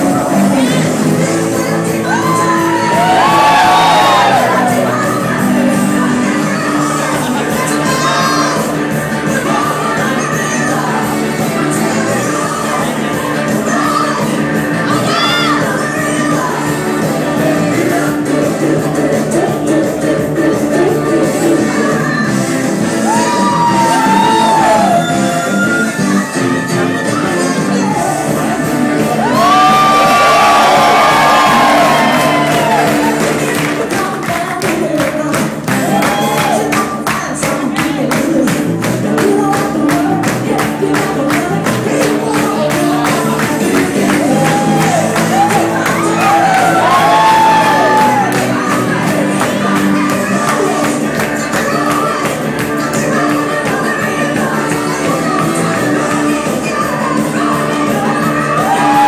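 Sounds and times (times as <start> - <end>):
upbeat dance music: 0.0 - 59.0
people whooping and cheering: 2.0 - 5.2, 14.9 - 15.7, 22.9 - 26.4, 29.0 - 33.8, 35.7 - 36.9, 43.0 - 49.2, 57.9 - 59.0.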